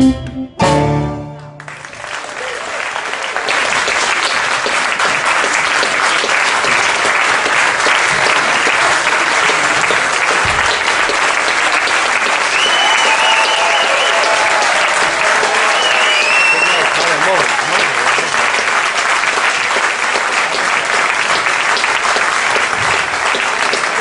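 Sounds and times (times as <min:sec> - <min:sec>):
crowd clapping: 0:01.4 - 0:24.0
high calls from audience: 0:12.4 - 0:18.0.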